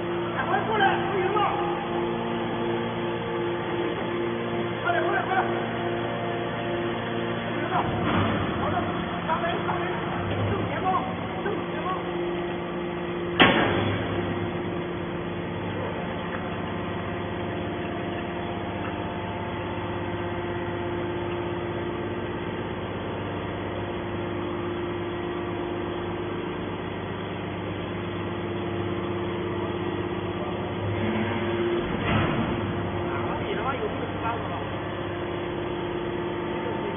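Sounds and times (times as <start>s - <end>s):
hydraulic power unit humming: 0.0s - 36.9s
sharp bang: 13.4s - 14.1s.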